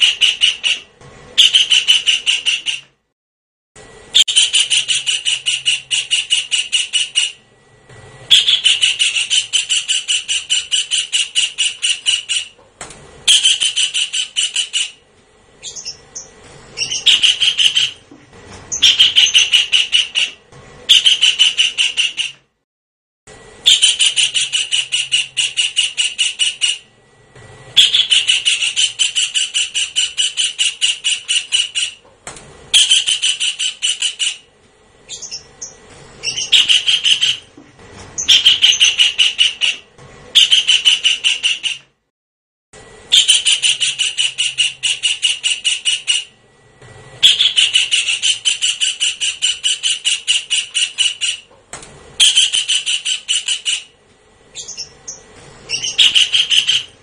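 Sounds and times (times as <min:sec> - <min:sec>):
kingfisher calling: 0:08.3 - 0:12.6, 0:15.6 - 0:18.0, 0:18.7 - 0:22.3, 0:27.8 - 0:32.0, 0:35.1 - 0:37.5, 0:38.2 - 0:39.8, 0:43.1 - 0:46.3, 0:47.2 - 0:51.5, 0:54.5 - 0:57.0.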